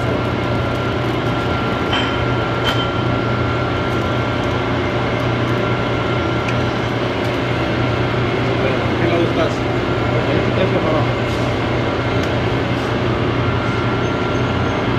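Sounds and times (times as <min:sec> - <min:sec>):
workshop machinery hum: 0:00.0 - 0:14.9.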